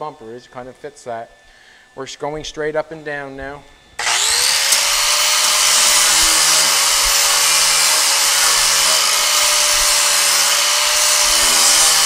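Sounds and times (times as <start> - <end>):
angle grinder grinding steel: 4.0 - 12.0.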